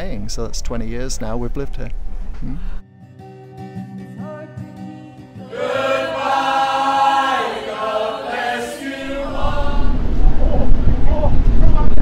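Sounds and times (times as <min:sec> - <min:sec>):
soft music: 0:02.8 - 0:09.9
men and women singing in chorus: 0:04.4 - 0:10.2.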